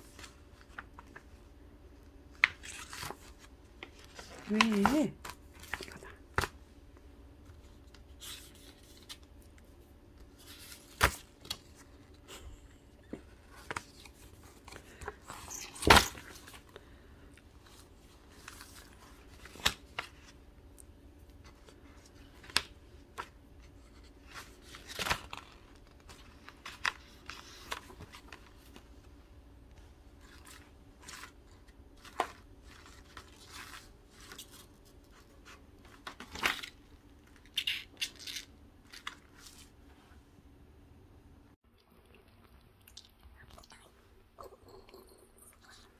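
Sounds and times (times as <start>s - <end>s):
paper pages rustling: 0.0s - 1.4s, 2.3s - 6.6s, 7.4s - 9.6s, 13.1s - 16.7s, 17.6s - 20.4s, 21.3s - 40.0s
faint steady hum: 0.0s - 45.9s.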